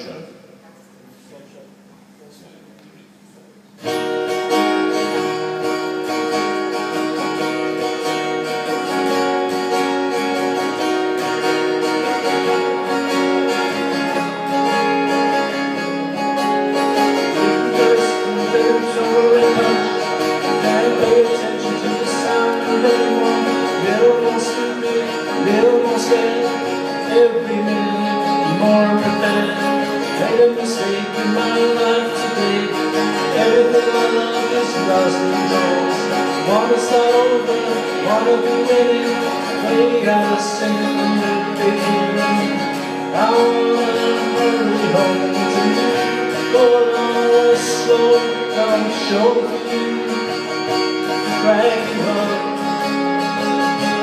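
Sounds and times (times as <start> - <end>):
acoustic guitars playing: 3.7 - 54.0
man singing: 12.1 - 54.0.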